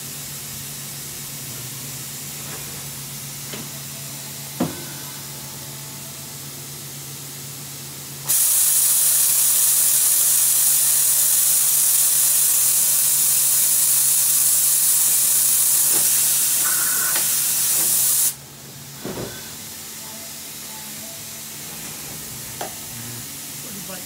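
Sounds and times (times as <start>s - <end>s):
loud hiss of spraying jet: 8.2s - 18.4s.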